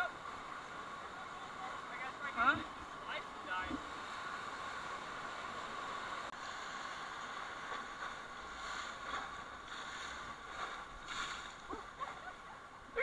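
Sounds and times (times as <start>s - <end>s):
rushing whitewater: 0.0s - 13.0s
spray splashing against raft: 6.7s - 12.3s.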